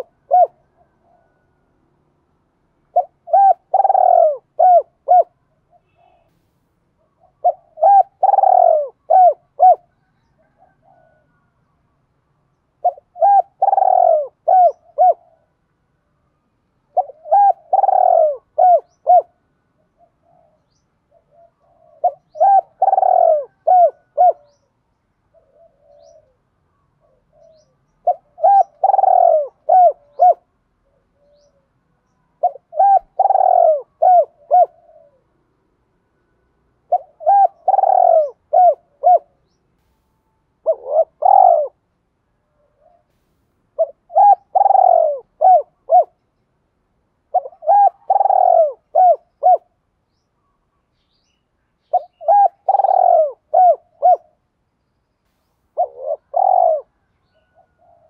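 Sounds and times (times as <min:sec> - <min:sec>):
dove cooing: 0:00.0 - 0:01.6, 0:02.9 - 0:06.3, 0:07.0 - 0:11.5, 0:12.8 - 0:15.6, 0:16.9 - 0:24.7, 0:25.3 - 0:31.8, 0:32.4 - 0:35.4, 0:36.8 - 0:39.5, 0:40.6 - 0:41.9, 0:42.5 - 0:43.2, 0:43.8 - 0:46.2, 0:47.2 - 0:49.8, 0:51.9 - 0:54.4, 0:55.8 - 0:58.0
faint soft coos: 0:00.0 - 0:01.8, 0:02.9 - 0:11.7, 0:12.8 - 0:15.6, 0:16.9 - 0:24.6, 0:25.3 - 0:31.8, 0:32.4 - 0:35.4, 0:36.9 - 0:39.4, 0:40.6 - 0:41.8, 0:42.4 - 0:46.2, 0:47.3 - 0:49.8, 0:52.0 - 0:54.4, 0:55.7 - 0:58.0.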